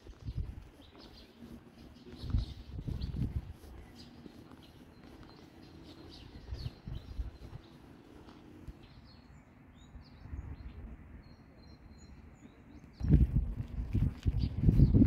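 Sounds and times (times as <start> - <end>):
small birds chirping: 0.0 - 15.0.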